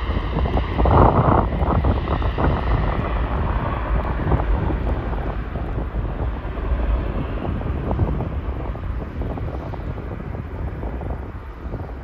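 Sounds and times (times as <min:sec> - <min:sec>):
distant jet engines rumbling: 0:00.0 - 0:12.0
wind buffeting microphone: 0:00.0 - 0:12.0.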